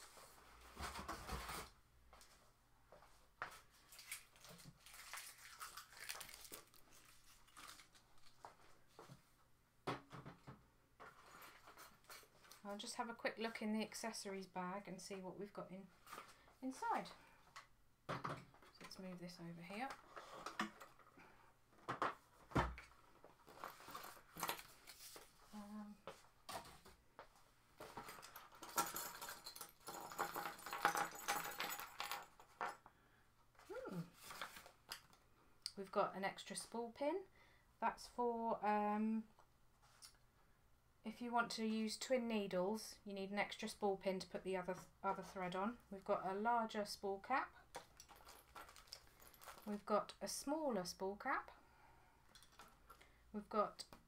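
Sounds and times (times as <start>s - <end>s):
packaging rustling and crinkling: 3.8s - 8.8s, 48.0s - 49.7s
small hard parts rattling: 28.0s - 32.9s, 47.7s - 49.7s, 52.3s - 53.0s.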